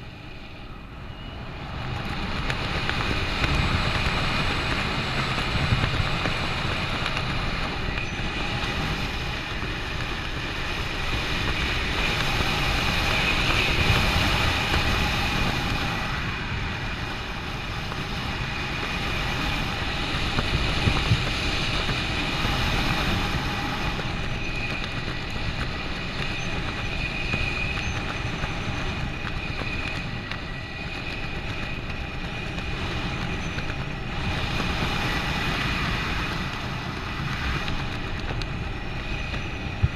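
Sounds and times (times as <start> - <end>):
wind rushing over microphone: 0.0 - 39.9
faint high whistle: 0.1 - 1.7.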